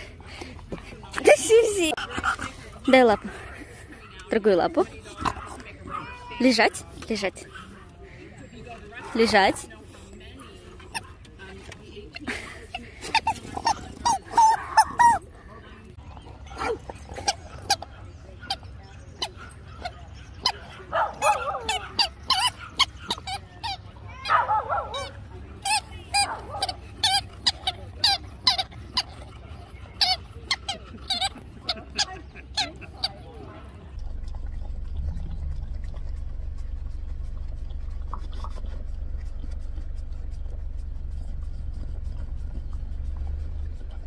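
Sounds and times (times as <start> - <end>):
car cabin rumble: 34.0 - 44.0.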